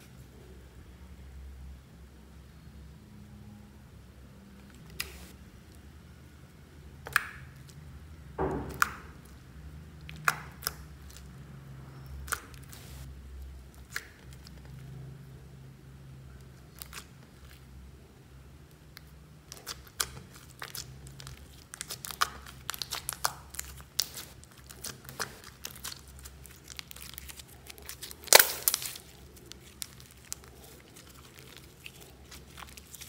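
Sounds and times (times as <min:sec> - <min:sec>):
slime popping: 0:08.4 - 0:09.4, 0:10.0 - 0:11.3, 0:19.0 - 0:33.0
slime squeezed with sticky clicks: 0:10.0 - 0:11.3, 0:19.0 - 0:33.0.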